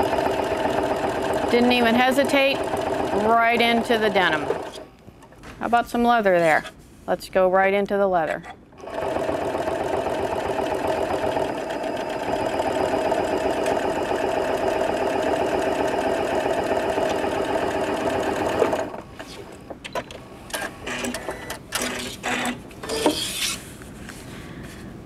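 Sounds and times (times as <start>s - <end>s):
sewing machine stitching: 0.0s - 4.8s, 8.8s - 19.0s.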